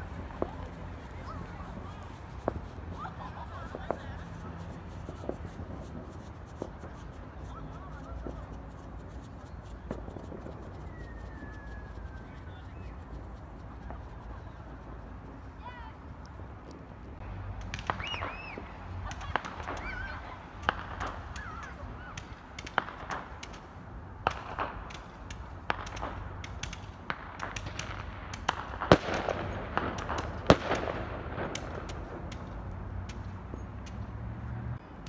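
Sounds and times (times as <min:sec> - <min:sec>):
loud firework bangs: 0:00.0 - 0:12.9, 0:17.6 - 0:34.3
whistling firework tones: 0:00.0 - 0:14.9, 0:17.8 - 0:22.4
fireworks popping and crackling: 0:00.0 - 0:34.6.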